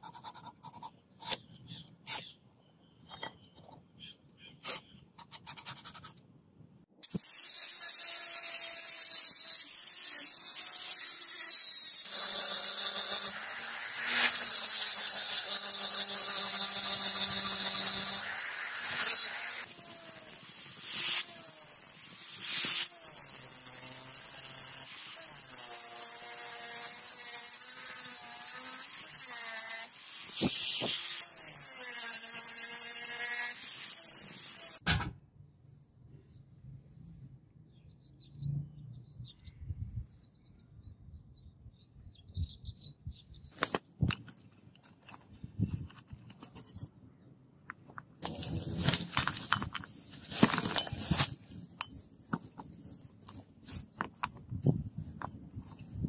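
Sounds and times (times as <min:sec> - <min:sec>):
angle grinder cutting steel: 0:07.0 - 0:34.8.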